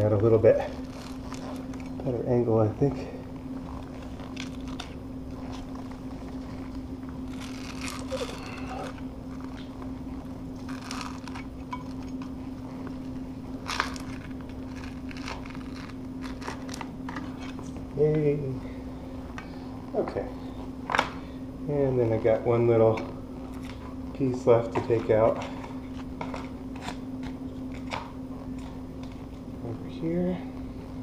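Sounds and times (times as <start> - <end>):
vinyl crackling: 0.0 - 18.5
steady low hum: 0.0 - 31.0
scraper blade scraping vinyl: 0.6 - 2.0, 3.6 - 11.5, 13.6 - 17.5.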